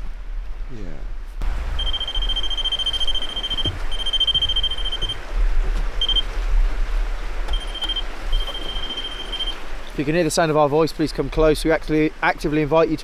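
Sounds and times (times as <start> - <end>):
high electronic alarm beeps: 1.8 - 5.2, 6.0 - 6.3, 7.5 - 9.6.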